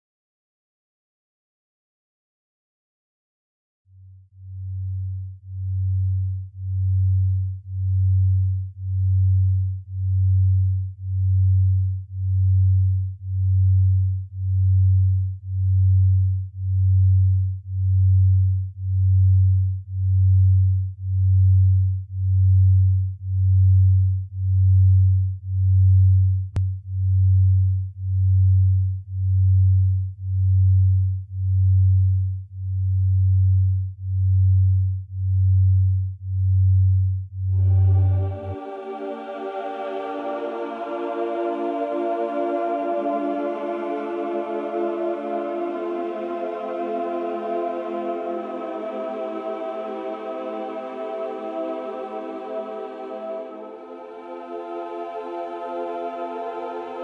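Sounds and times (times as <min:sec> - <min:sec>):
low pulsing electronic tone: 0:04.0 - 0:39.4.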